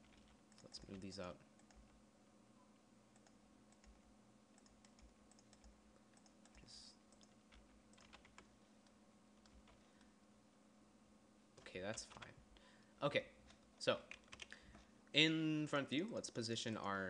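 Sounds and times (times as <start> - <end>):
keyboard and mouse clicks: 0.0 - 2.0, 3.2 - 9.8, 13.4 - 14.8
low steady hum: 0.0 - 17.0
soft hiss: 0.0 - 17.0.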